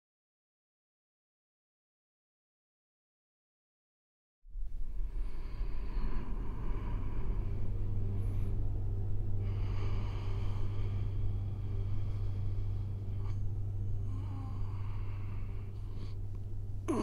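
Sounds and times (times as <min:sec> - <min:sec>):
low rumbling drone: 0:04.5 - 0:17.0.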